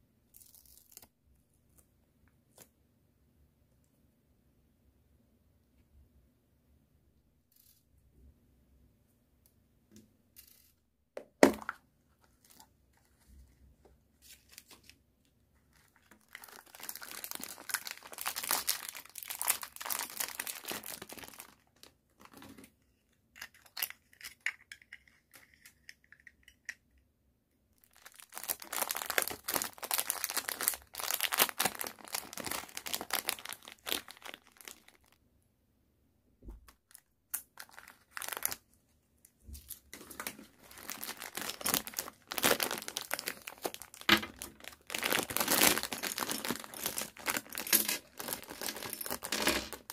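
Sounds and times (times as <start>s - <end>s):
plastic bags crinkling and tearing: 15.6s - 22.4s, 27.8s - 35.2s, 36.9s - 38.6s, 39.6s - 49.9s.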